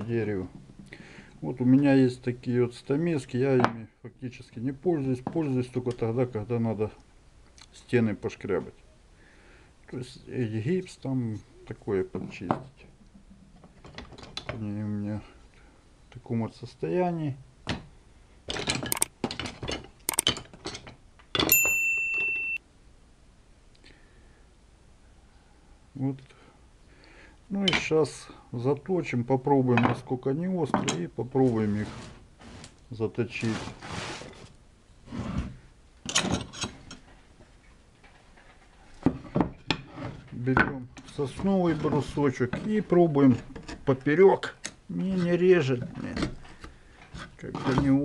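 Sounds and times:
tools clicking on wooden bench: 18.5 - 21.8
short sharp clicks and clinks: 18.9 - 19.1, 20.1 - 20.3
high bell-like ding: 21.5 - 22.6.

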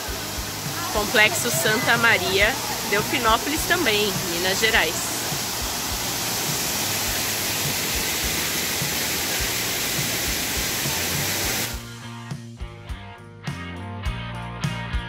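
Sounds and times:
waterfall pouring into pool: 0.0 - 11.9.

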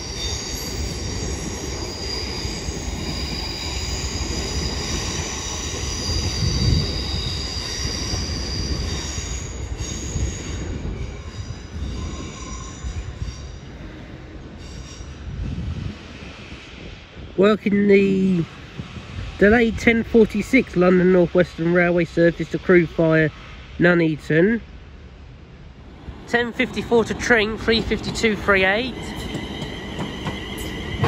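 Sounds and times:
train wheels squealing: 0.0 - 16.9, 26.5 - 31.0
low train rumble: 0.0 - 31.0.

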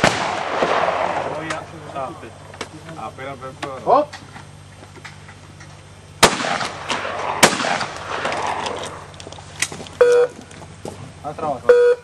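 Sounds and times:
shotgun shots echoing: 0.0 - 2.1, 6.2 - 9.3.

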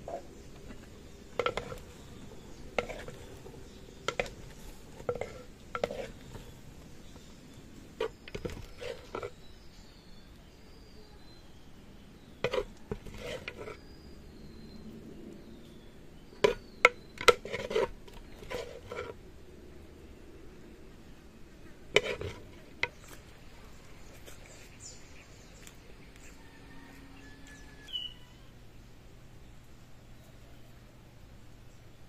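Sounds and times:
ladle scraping pot and plate: 0.0 - 2.1, 2.7 - 6.5, 8.0 - 9.5, 12.4 - 13.9, 16.4 - 19.2, 21.9 - 23.0
birds: 0.0 - 32.0.

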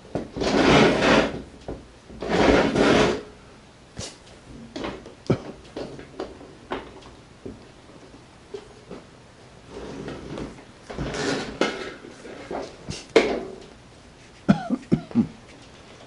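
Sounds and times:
vacuum hose knocking and scraping: 9.9 - 13.7.

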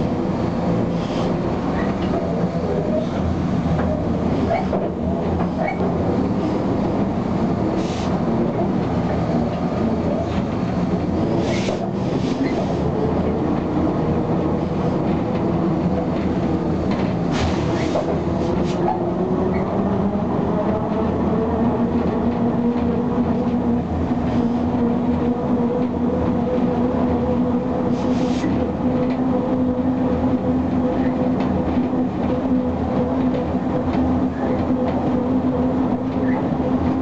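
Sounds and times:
wheels rumbling on track: 0.0 - 37.0
brief air hiss: 7.8 - 8.1.

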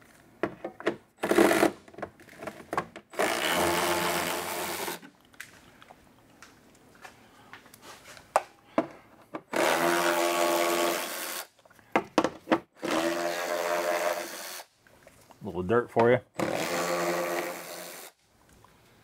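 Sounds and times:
cordless power tool whirring: 3.1 - 5.1, 9.5 - 11.5, 12.8 - 14.7, 16.4 - 18.1.

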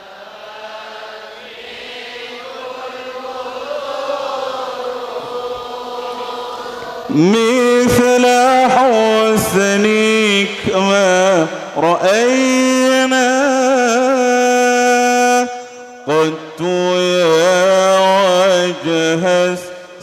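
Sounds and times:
congregation chanting in unison: 0.0 - 20.0
man singing into microphone: 7.0 - 20.0.

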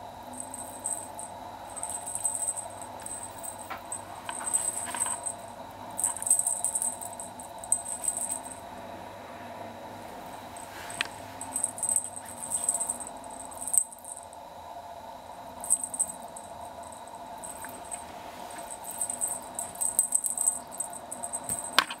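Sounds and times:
faint steady hum: 0.0 - 22.0
kitten claws scratching quilt: 1.8 - 5.4.

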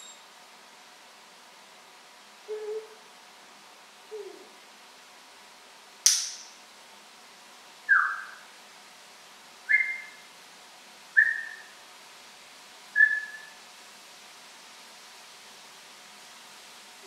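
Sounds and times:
parrot whistling: 0.0 - 0.2, 7.9 - 8.4, 9.7 - 10.2, 11.2 - 11.7, 13.0 - 13.6.

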